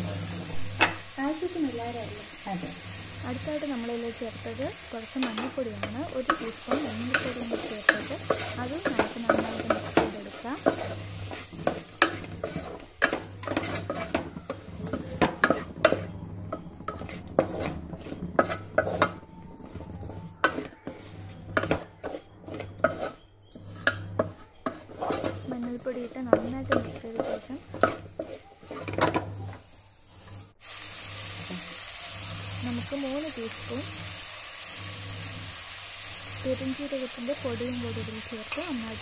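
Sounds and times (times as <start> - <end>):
wooden spatula scraping metal pan: 0.0 - 30.6
food sizzling: 0.0 - 39.0.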